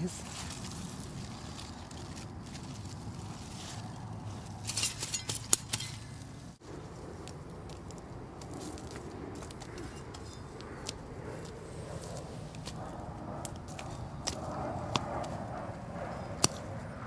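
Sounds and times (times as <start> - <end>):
leaves rustling: 0.0 - 15.4.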